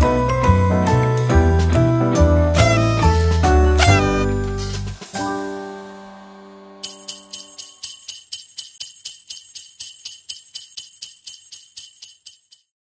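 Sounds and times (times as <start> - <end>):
music notes ringing out: 2.6 - 3.2, 3.8 - 4.6
sleigh bells shaking: 6.8 - 12.8.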